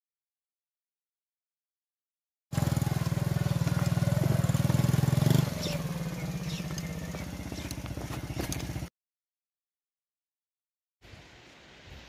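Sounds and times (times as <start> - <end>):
small motorcycle engine putter: 3.0 - 8.9.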